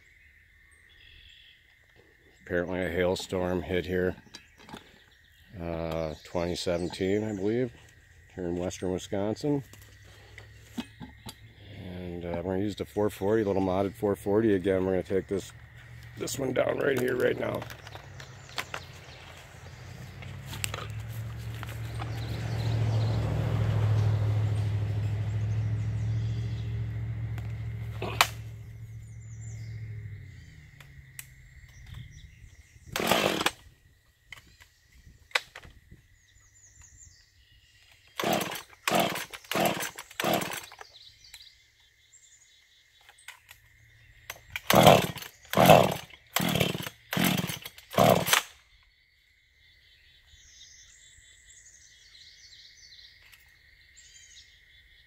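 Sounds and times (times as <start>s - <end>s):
chainsaw starter cord pulls: 16.8s - 18.9s, 32.9s - 33.6s, 38.1s - 40.9s, 44.5s - 48.5s.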